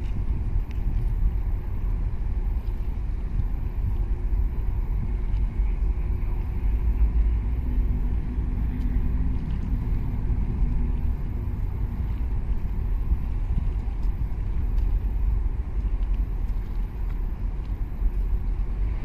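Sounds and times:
faint hum: 0:00.0 - 0:19.0
low rumble: 0:00.0 - 0:19.0
water noise: 0:00.0 - 0:19.0
wind noise: 0:00.0 - 0:19.0.

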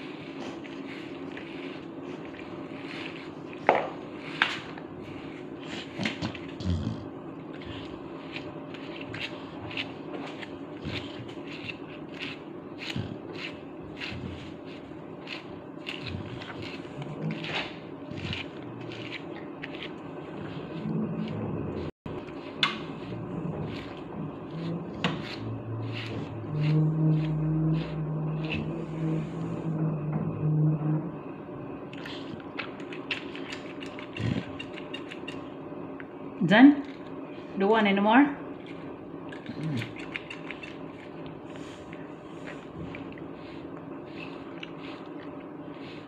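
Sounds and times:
steady low hum: 0:00.0 - 0:46.0
brush strokes through dog fur: 0:24.9 - 0:29.6.

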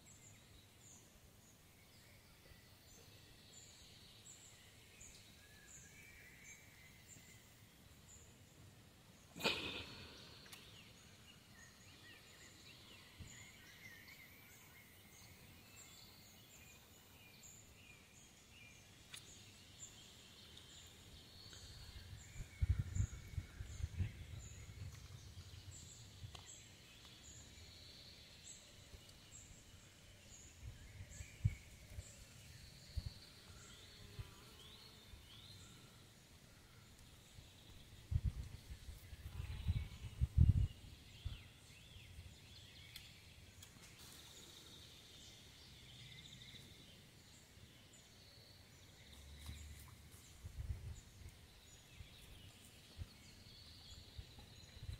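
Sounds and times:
birds calling: 0:09.3 - 0:12.5.

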